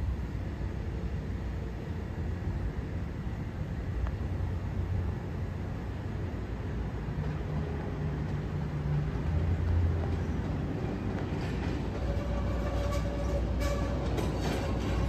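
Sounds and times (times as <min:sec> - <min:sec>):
steady train whine: 0:00.0 - 0:15.0
train wheels rumbling on rail: 0:00.0 - 0:15.0.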